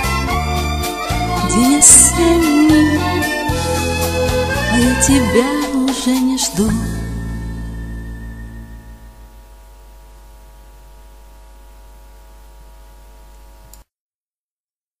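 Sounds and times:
ballad song: 0.0 - 9.2
low hum with hiss: 6.5 - 13.8.

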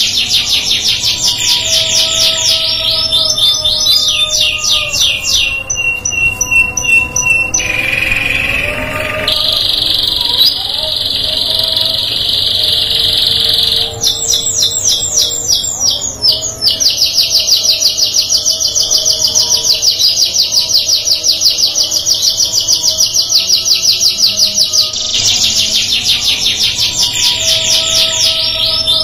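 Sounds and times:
canary singing: 0.0 - 29.0.

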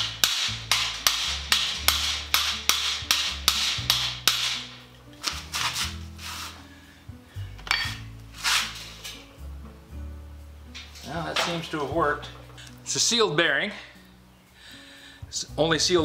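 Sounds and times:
hammer striking steel: 0.0 - 4.8.

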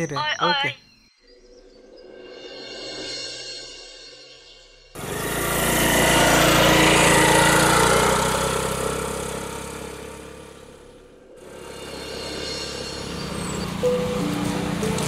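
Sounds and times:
motorbike passing by: 5.0 - 15.0.

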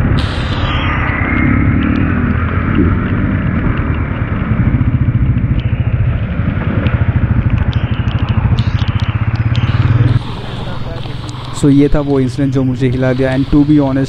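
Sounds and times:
motorcycle engine running: 2.7 - 11.5.

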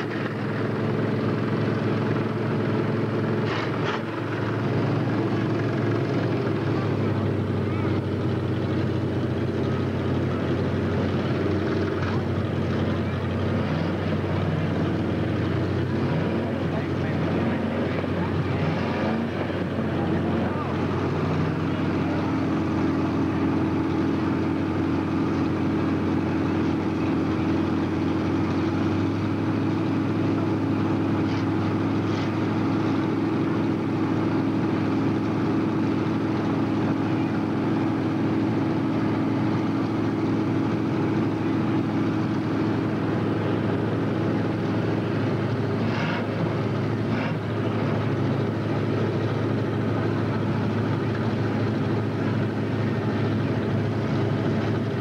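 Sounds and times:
racing cars engine drone: 0.0 - 55.0.

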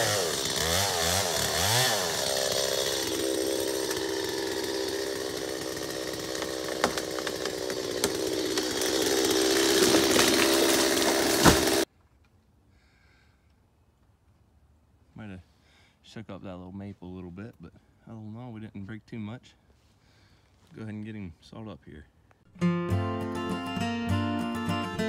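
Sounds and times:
chainsaw revving: 0.0 - 11.9
wood cracking: 2.4 - 11.9
heavy thump of falling tree: 9.9 - 11.8.

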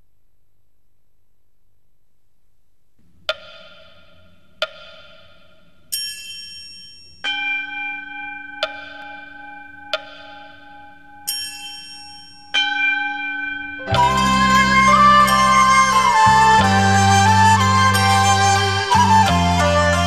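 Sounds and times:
bells struck ringing: 5.9 - 16.6.

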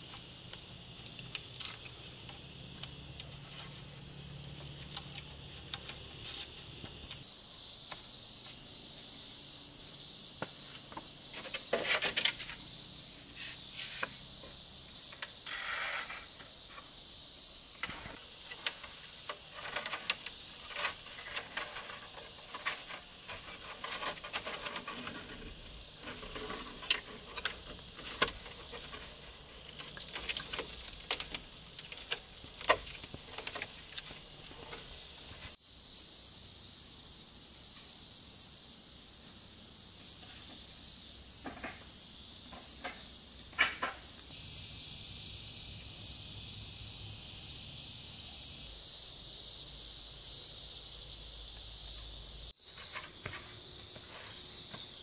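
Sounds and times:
high pulsing insect chorus: 0.0 - 55.0
handling clicks and knocks: 17.8 - 34.9.

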